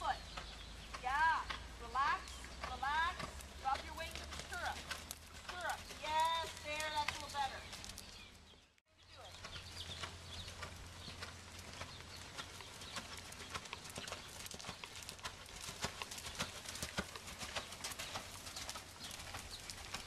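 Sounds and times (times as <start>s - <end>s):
horse hoofbeats on sand: 0.2s - 8.3s, 9.2s - 20.0s.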